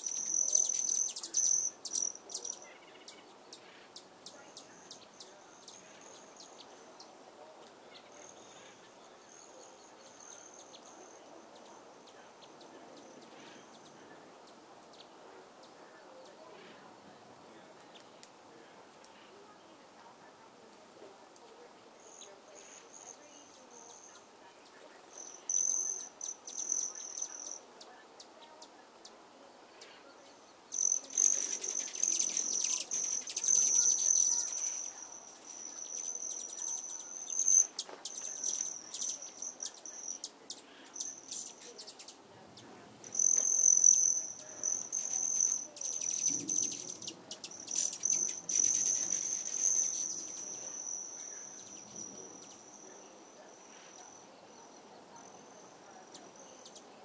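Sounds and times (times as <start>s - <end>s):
insect buzzing: 25.1s - 27.6s, 30.7s - 42.2s, 43.0s - 54.7s.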